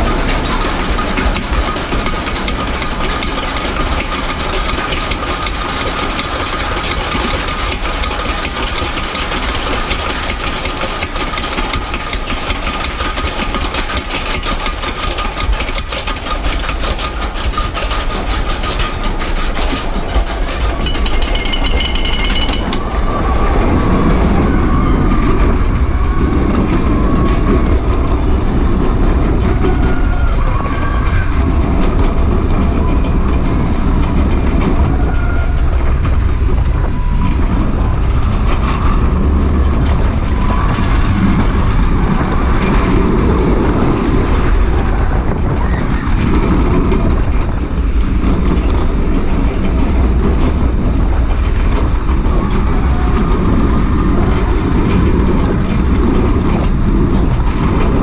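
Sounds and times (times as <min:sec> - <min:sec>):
constant whine: 0:00.0 - 0:58.0
roller coaster wheels rumbling: 0:00.0 - 0:58.0.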